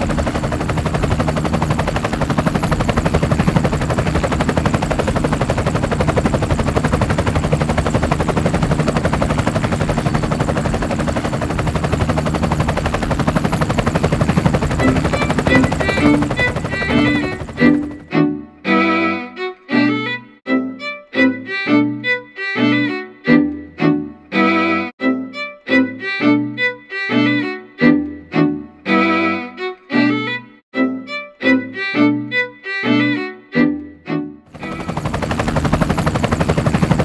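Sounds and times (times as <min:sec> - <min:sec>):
fiddle music: 0:14.6 - 0:35.6.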